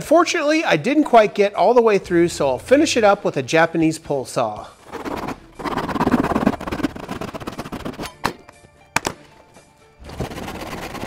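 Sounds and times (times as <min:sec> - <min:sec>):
background music: 0:00.0 - 0:11.0
hand saw cutting wood: 0:04.8 - 0:08.2, 0:10.0 - 0:11.0.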